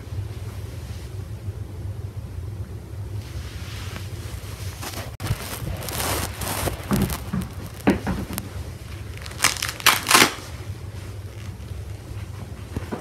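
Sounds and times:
steady low hum: 0.0 - 13.0
rustling and crinkling: 3.2 - 13.0
sharp crackles: 4.7 - 10.6.

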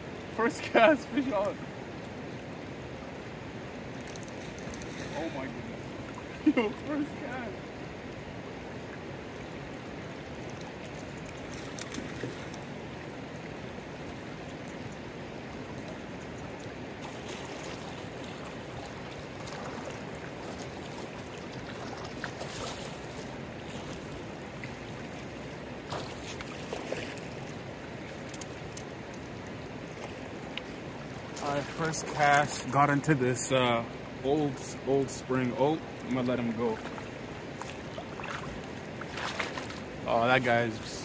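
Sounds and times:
river rushing over stones: 0.0 - 41.0.

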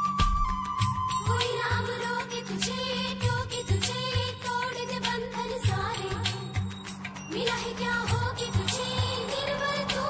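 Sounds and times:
instrumental film music: 0.0 - 3.1
steady drum beat: 0.2 - 10.0.

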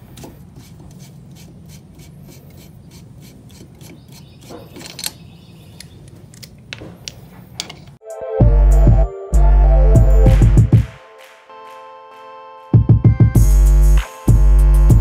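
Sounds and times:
metal rubbing on metal: 0.4 - 5.0.

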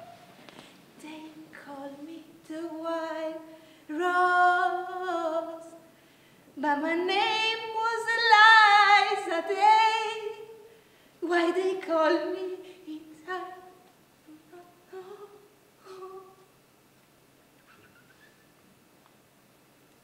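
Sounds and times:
woman singing unaccompanied: 1.0 - 5.8, 6.6 - 16.5.

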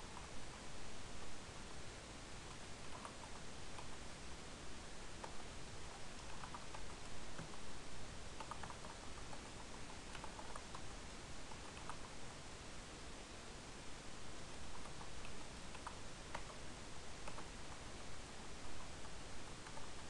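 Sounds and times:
steady hiss: 0.0 - 20.0
computer keyboard typing: 2.9 - 4.0, 6.2 - 7.6, 8.4 - 12.2, 14.7 - 16.6, 17.2 - 17.9, 18.8 - 20.0.

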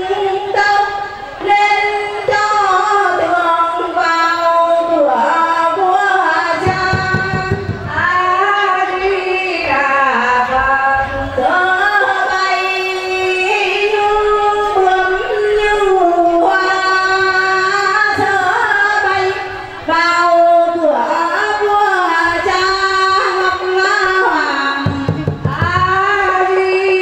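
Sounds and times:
woman singing into a microphone: 0.0 - 27.0.

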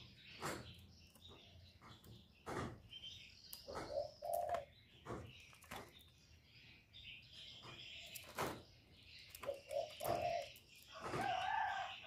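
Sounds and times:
dove cooing: 3.7 - 4.7, 9.4 - 12.0.

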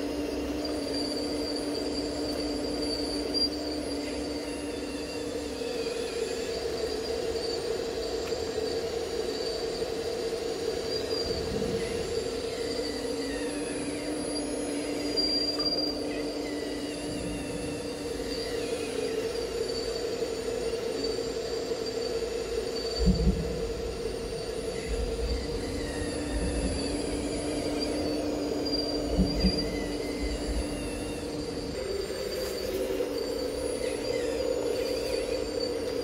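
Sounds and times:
electric motors whining: 0.0 - 36.0
high whine rising and falling: 11.0 - 36.0.

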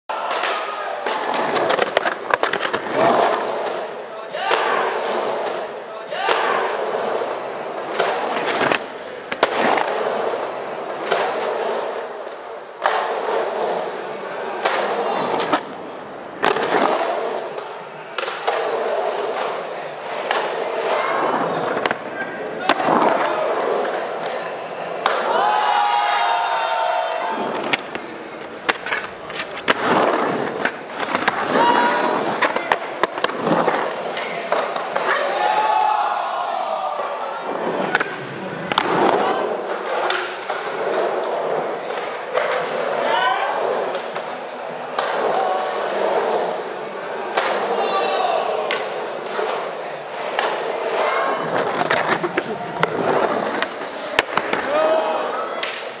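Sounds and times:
skateboard clack: 0.1 - 36.2, 36.9 - 56.0
skateboard wheels rolling on concrete: 0.1 - 56.0.

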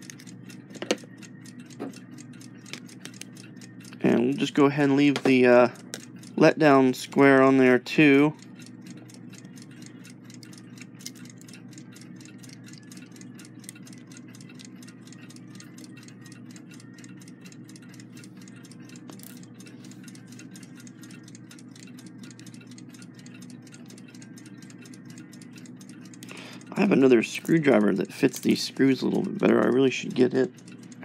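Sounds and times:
screwdriver clicking on metal: 0.0 - 2.0, 10.3 - 11.6
clock ticking: 0.0 - 31.0.

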